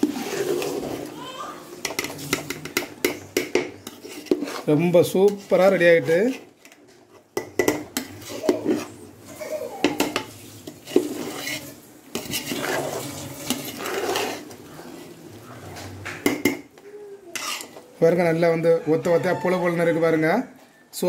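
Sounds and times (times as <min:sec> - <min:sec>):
ladle scraping through rice: 0:00.0 - 0:01.2, 0:03.8 - 0:06.4, 0:10.3 - 0:15.9
ladle clanking on metal pot: 0:06.6 - 0:08.9, 0:09.8 - 0:12.6.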